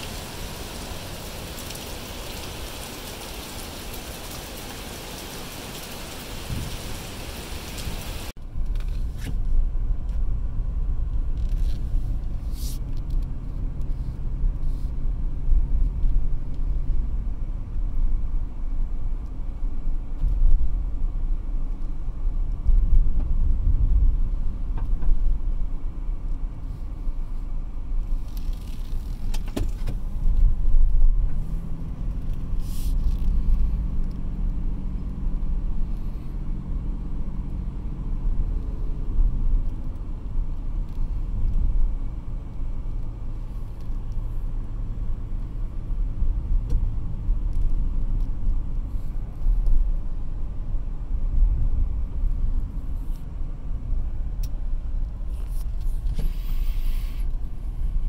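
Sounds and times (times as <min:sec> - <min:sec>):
heavy rain hissing: 0:00.0 - 0:08.3
car engine and road rumble: 0:00.0 - 0:58.0
engine hum: 0:00.0 - 0:58.0.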